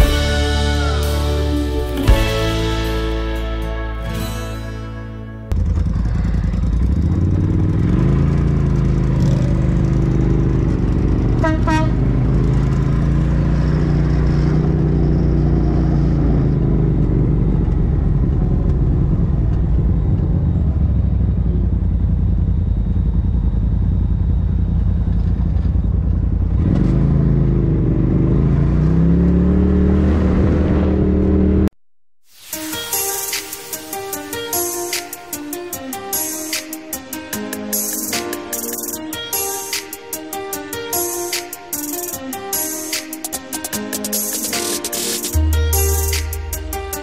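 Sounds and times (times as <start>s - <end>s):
engine revving: 5.5s - 31.7s
short horn toot: 11.4s - 12.0s.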